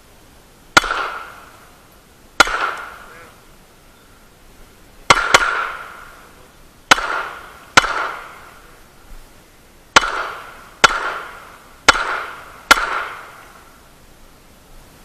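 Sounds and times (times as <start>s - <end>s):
pistol shots: 0.8s - 1.5s, 2.4s - 3.1s, 5.1s - 6.2s, 6.9s - 8.5s, 10.0s - 13.6s.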